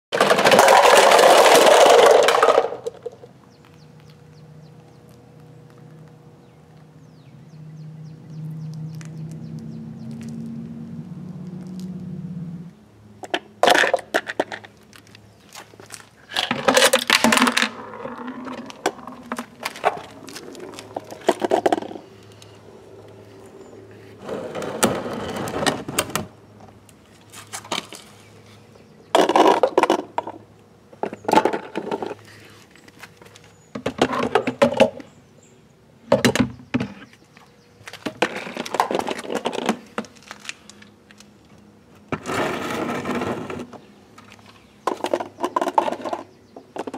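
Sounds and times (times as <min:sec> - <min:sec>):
plastic toy bins clattering on concrete: 0:00.1 - 0:03.3, 0:13.2 - 0:15.2, 0:15.8 - 0:22.0, 0:29.1 - 0:30.4, 0:31.0 - 0:32.2, 0:33.8 - 0:35.0, 0:37.9 - 0:40.6, 0:44.8 - 0:46.9.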